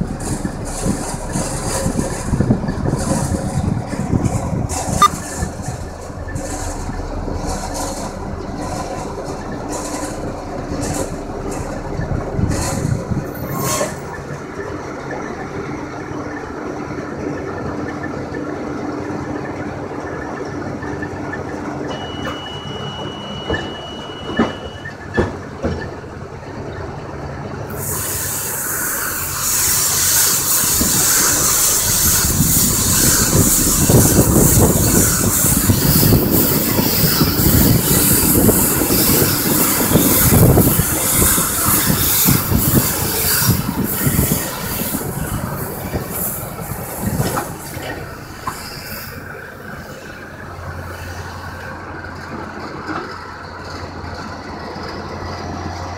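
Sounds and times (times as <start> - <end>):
tractor engine running: 0.0 - 55.9
steady beep: 5.0 - 5.3, 21.9 - 25.0
loud hiss: 27.8 - 47.8.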